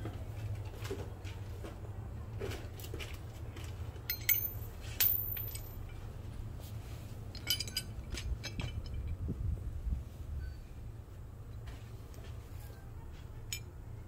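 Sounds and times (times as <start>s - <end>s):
loose bolts clinking on metal: 4.0s - 6.0s, 7.3s - 9.2s, 13.5s - 13.7s.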